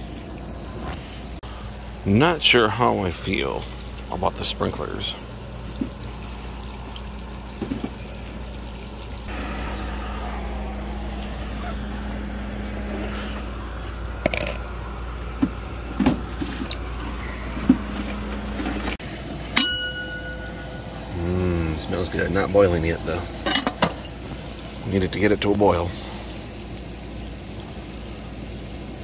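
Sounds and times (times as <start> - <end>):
water running from spigot: 1.4 - 9.4, 10.6 - 29.0
metal lid clanking on percolator: 14.2 - 14.6.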